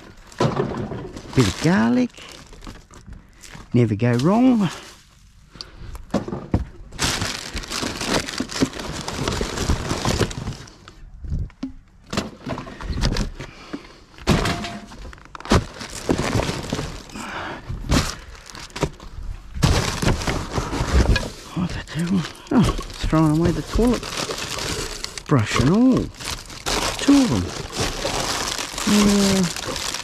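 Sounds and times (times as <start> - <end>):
knocks and clatters of rubbish: 0.0 - 3.7, 6.1 - 10.6, 11.6 - 30.0
plastic rustling: 0.0 - 5.4, 6.9 - 10.9, 14.9 - 30.0.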